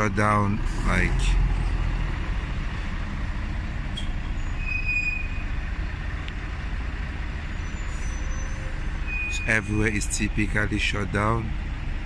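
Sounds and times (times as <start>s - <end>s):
distant road traffic: 0.0s - 12.0s
faint high-pitched squeal: 7.5s - 9.9s.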